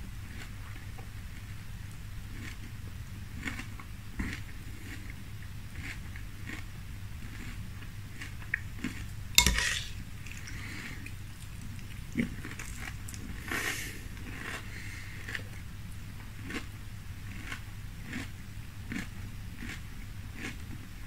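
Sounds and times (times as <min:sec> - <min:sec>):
chewing cereal: 0:02.2 - 0:21.0
spoon clicking in glass bowl: 0:09.4 - 0:09.9.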